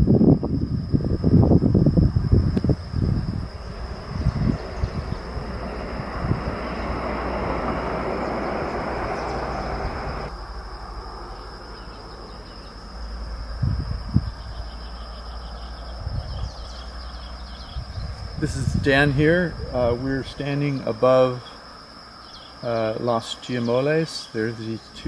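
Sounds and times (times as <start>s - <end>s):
wind buffeting microphone: 0.0s - 10.4s, 13.3s - 20.8s
cricket chirps: 0.0s - 25.0s
high insect drone: 0.0s - 25.0s
steady rushing noise: 0.9s - 11.6s.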